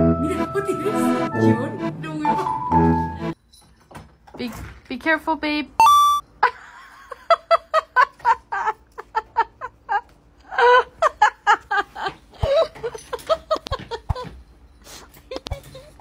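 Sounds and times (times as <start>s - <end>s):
person laughing hard: 6.5s - 14.3s.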